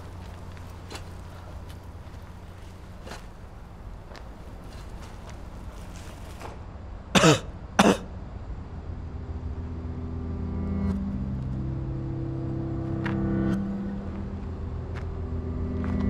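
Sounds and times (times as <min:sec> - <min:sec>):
low steady multi-tone hum: 0:00.0 - 0:16.0
person coughing: 0:07.2 - 0:08.1.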